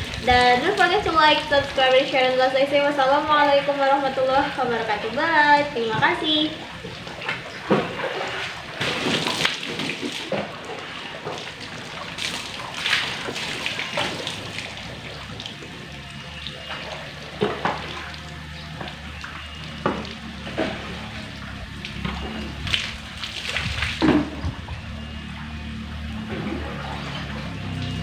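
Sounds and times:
water splashing onto wet concrete: 6.2s - 25.2s.

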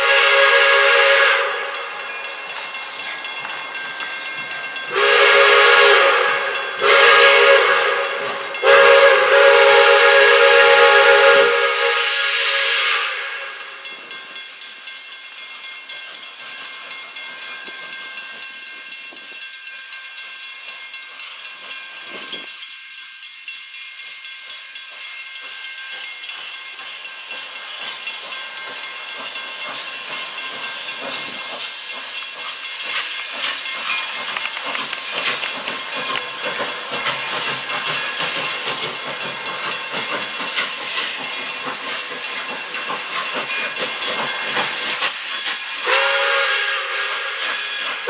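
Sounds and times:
locomotive exhaust beats: 0.0s - 14.3s
steam locomotive chime whistle: 0.0s - 16.0s, 16.6s - 48.0s
steam hiss: 0.0s - 48.0s.

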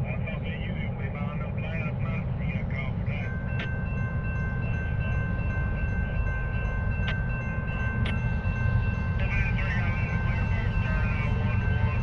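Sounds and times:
crossing warning bell ringing: 2.0s - 12.0s.

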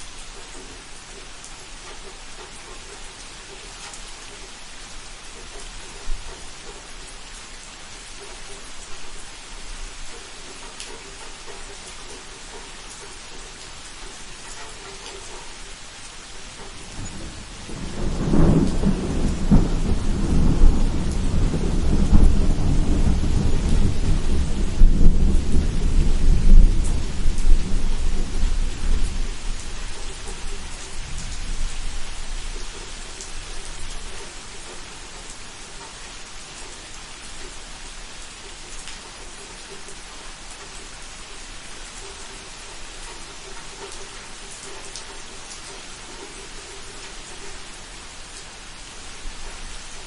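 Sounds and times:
steady rain falling: 0.0s - 50.0s
thunder rumbling: 16.7s - 32.8s.

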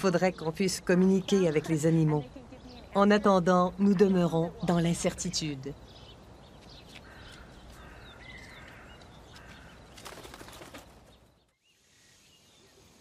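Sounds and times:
crow wingbeats: 6.9s - 11.3s.

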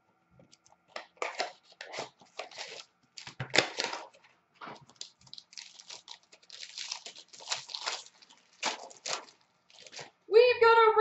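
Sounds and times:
cards rustling in hands: 0.5s - 10.2s
wrapper tearing and crinkling: 0.9s - 10.2s.

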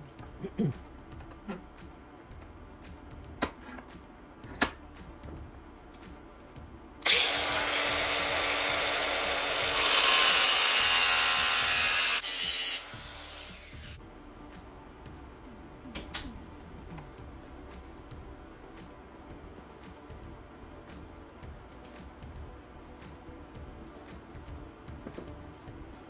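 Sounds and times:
angle grinder grinding metal: 7.0s - 14.0s.

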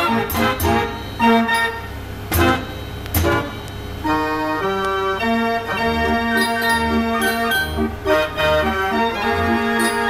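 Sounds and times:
fairground organ playing: 0.0s - 10.0s
percussion strikes: 0.3s - 3.6s, 6.3s - 7.9s, 9.7s - 10.0s.

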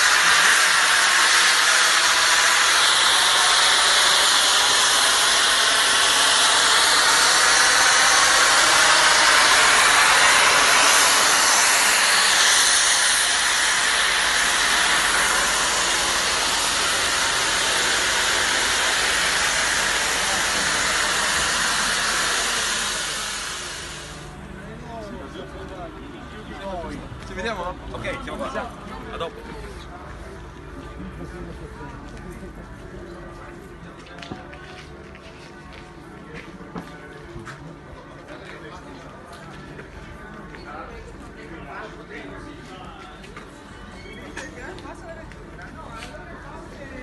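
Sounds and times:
steam hissing from locomotive: 0.0s - 24.8s.

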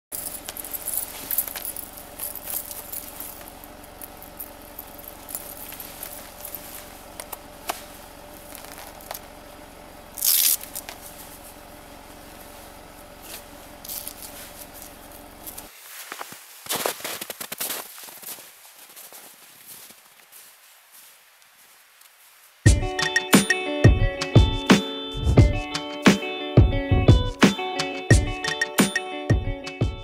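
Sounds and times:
metal spikes and chains clinking: 0.1s - 6.9s, 10.2s - 10.9s, 13.8s - 15.7s
rubber harness and clothing rustling: 0.1s - 9.3s, 12.2s - 22.6s.

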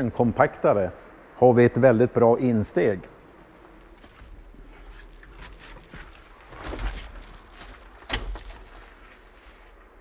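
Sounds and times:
person shuffling: 3.4s - 10.0s
plastic wrapping rustling: 4.8s - 9.8s.

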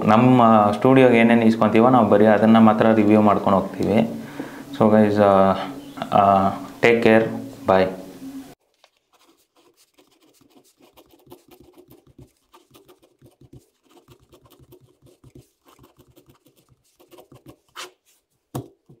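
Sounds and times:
pen scratching on paper: 9.0s - 18.2s.

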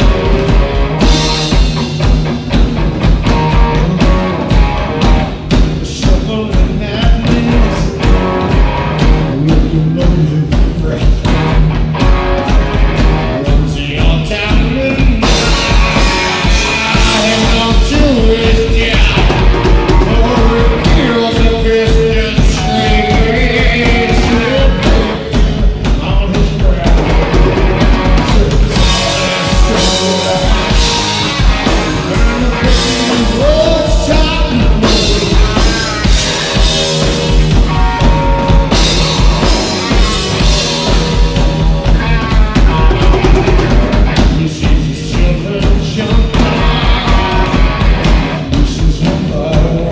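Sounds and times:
bass guitar: 0.0s - 49.9s
drum kit with driving beat: 0.0s - 49.9s
electric guitar: 0.0s - 49.9s
man singing into microphone: 5.8s - 8.1s, 9.1s - 11.6s, 13.2s - 15.7s, 16.4s - 27.4s, 28.0s - 31.2s, 32.1s - 35.9s, 42.0s - 47.6s, 48.4s - 49.9s.

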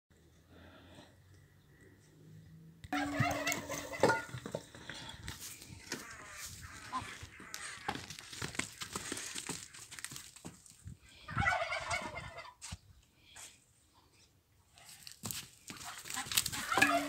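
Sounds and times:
turkey gobbling: 2.9s - 4.4s, 11.3s - 12.6s, 15.9s - 17.0s.

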